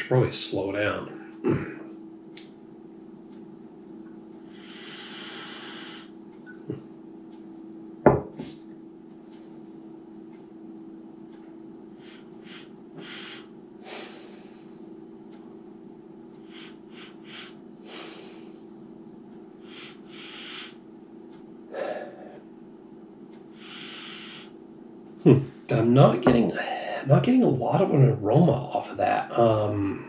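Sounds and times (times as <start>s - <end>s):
steady low hum: 0.0s - 30.0s
person sniffing: 12.0s - 14.3s.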